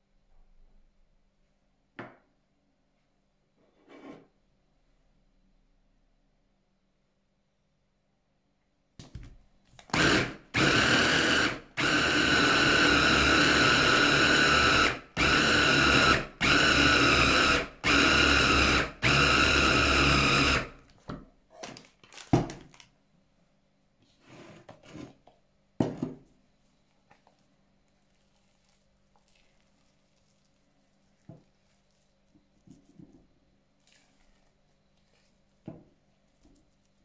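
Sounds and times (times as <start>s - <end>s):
food processor motor pulsing: 9.8s - 20.8s.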